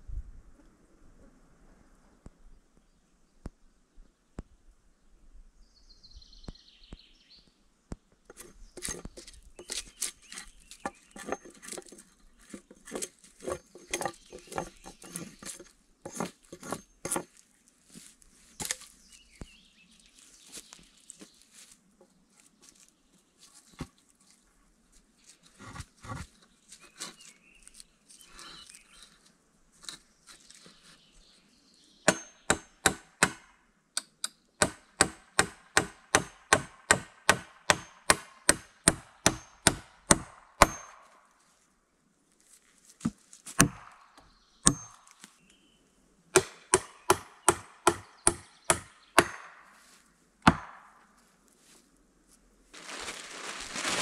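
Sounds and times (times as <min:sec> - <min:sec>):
rustling and scraping: 0:08.2 - 0:31.5, 0:42.3 - 0:43.6, 0:51.0 - 0:54.0
axe chopping wood: 0:32.1 - 0:33.5, 0:34.6 - 0:41.0, 0:43.5 - 0:44.0, 0:46.4 - 0:49.6, 0:50.4 - 0:51.0.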